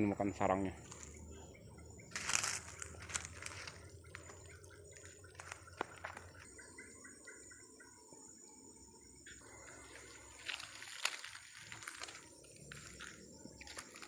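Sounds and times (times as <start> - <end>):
insects buzzing: 0.0 - 14.0
footsteps crunching through dry grass: 0.8 - 1.3, 2.1 - 6.6, 9.5 - 14.0.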